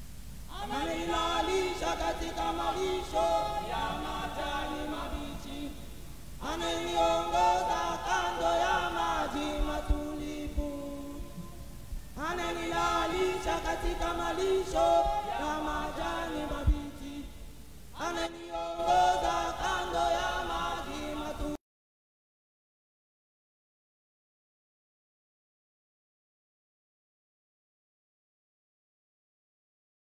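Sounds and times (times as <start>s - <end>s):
person singing unaccompanied: 0.5s - 21.6s.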